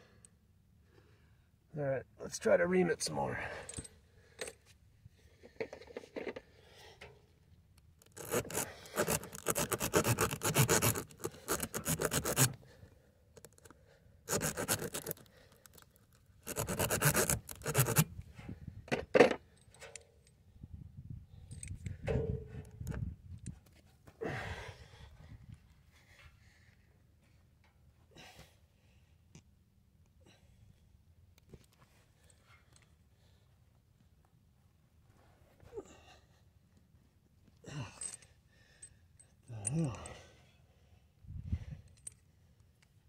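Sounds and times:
reamer rasping against rubber: 0:08.1 - 0:12.6, 0:14.3 - 0:15.3, 0:16.4 - 0:18.0.

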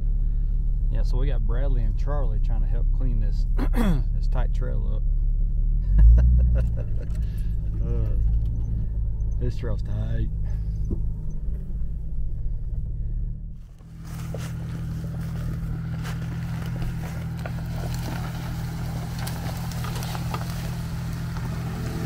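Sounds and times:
car engine running: 0:00.0 - 0:22.0
dense crackling noise: 0:06.6 - 0:22.0.

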